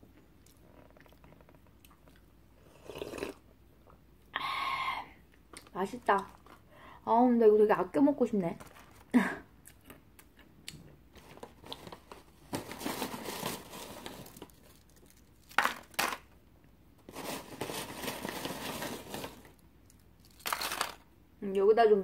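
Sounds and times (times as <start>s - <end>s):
plastic snack bag crinkling: 5.6s - 6.7s, 11.1s - 16.4s, 17.0s - 21.1s.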